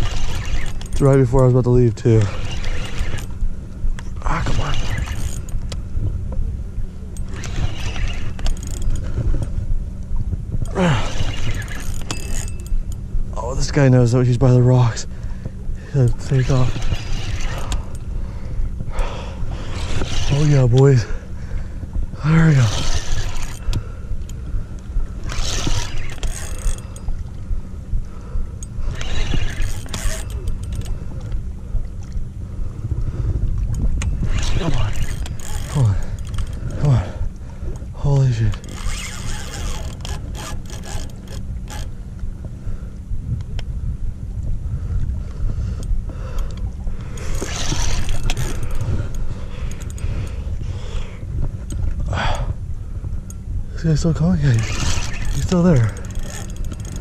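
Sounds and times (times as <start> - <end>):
fishing reel clicks: 0.0 - 1.4, 2.1 - 3.4, 4.3 - 5.8, 7.1 - 9.1, 11.0 - 13.0, 16.0 - 18.1, 22.2 - 24.4, 25.2 - 27.1, 28.6 - 30.9, 34.0 - 37.0, 38.4 - 41.9, 45.8 - 50.4, 54.5 - 57.0
low rumble: 0.0 - 57.0.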